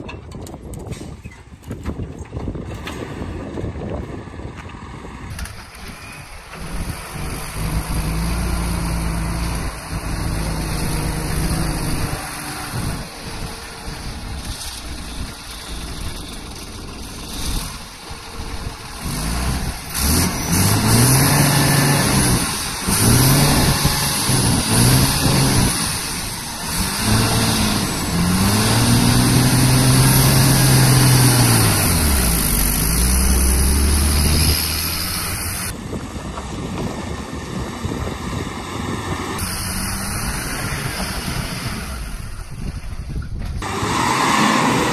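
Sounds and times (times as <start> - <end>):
truck diesel engine under load: 0.0 - 44.9
high engine whine: 2.8 - 44.9.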